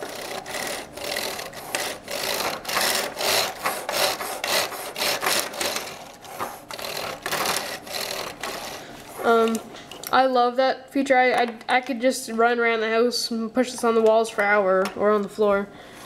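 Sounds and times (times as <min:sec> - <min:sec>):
plastic wheel rolling on wood: 0:00.0 - 0:09.6.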